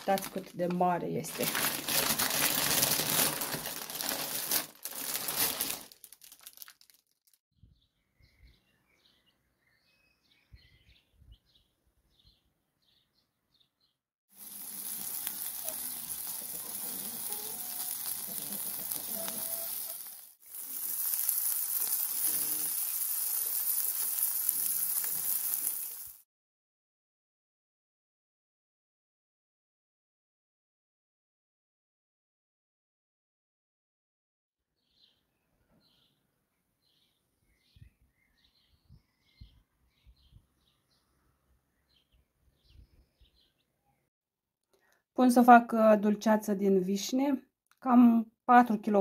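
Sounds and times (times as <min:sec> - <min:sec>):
plastic bag crinkling: 0:00.0 - 0:07.4, 0:14.4 - 0:26.2
faint bird chirps: 0:07.6 - 0:14.0, 0:34.8 - 0:44.1
meat sizzling on a grill: 0:14.3 - 0:26.2.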